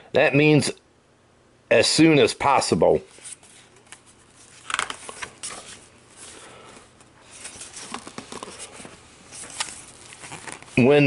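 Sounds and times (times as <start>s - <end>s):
book pages turning and rustling: 3.1s - 10.9s.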